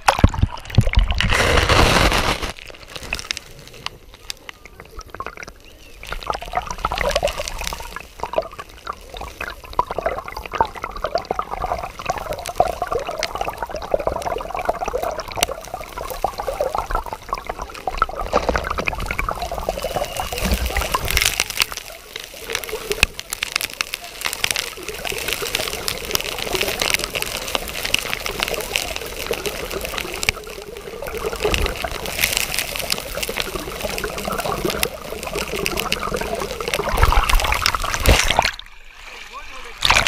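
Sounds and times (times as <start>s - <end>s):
small underwater clicks: 0.0s - 38.8s
muffled underwater river: 0.0s - 40.0s
rush of water: 0.0s - 40.0s
splash into water: 31.4s - 40.0s.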